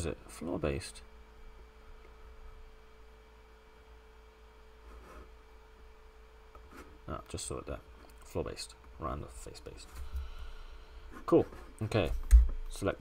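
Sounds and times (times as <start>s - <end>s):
faint electrical hum: 0.0s - 13.0s.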